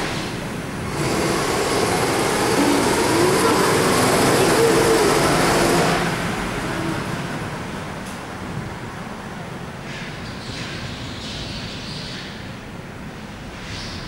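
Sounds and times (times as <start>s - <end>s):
go-kart engines: 0.0s - 8.6s.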